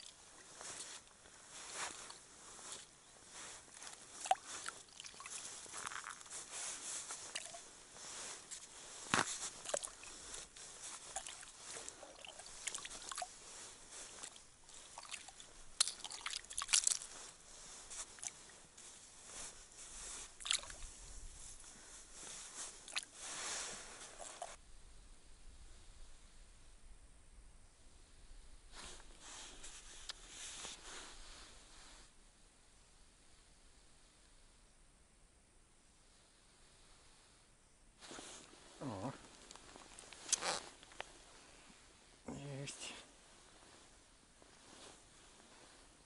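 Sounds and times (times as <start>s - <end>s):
snow and ice crunching: 0.1s - 24.6s
water splashing in ice hole: 3.7s - 6.4s, 7.0s - 8.1s, 8.9s - 18.5s, 20.0s - 21.0s.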